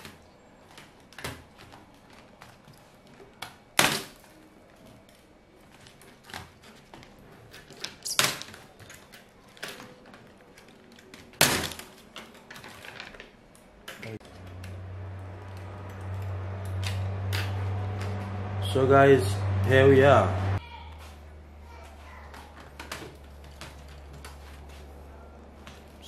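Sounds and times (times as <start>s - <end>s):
steady low hum: 14.2s - 21.8s.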